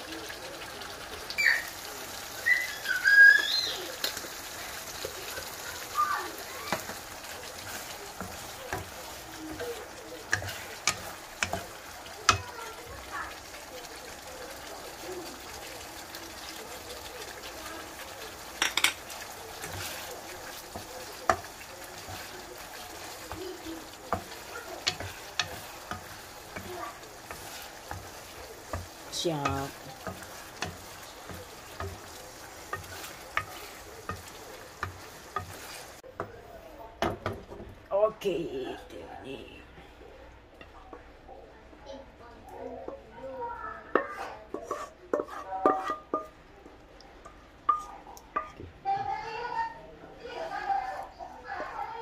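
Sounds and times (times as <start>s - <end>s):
sauce sizzling: 0.0s - 36.3s, 42.4s - 52.0s
wooden spatula scraping a pan: 2.7s - 13.2s, 17.0s - 36.0s, 43.8s - 46.3s
utensil clinking against wok: 18.4s - 20.0s, 23.2s - 36.3s, 43.9s - 46.4s, 47.2s - 48.6s.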